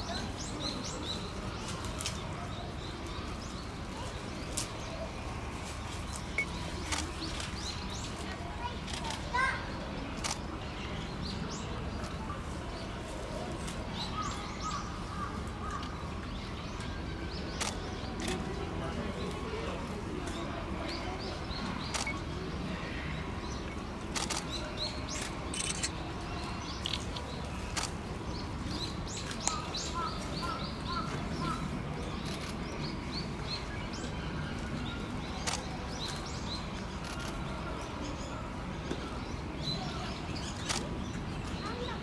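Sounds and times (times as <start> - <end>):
small birds chirping: 0.0 - 42.0
sharp clicks: 24.2 - 26.0.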